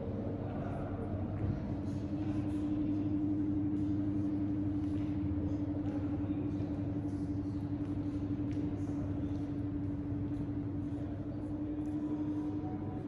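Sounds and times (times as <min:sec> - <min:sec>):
low mechanical hum: 0:00.0 - 0:13.0.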